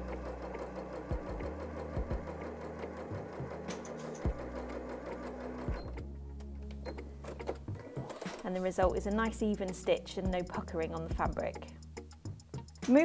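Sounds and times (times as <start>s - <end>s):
sewing machine stitching: 0.0s - 6.1s, 6.8s - 10.6s.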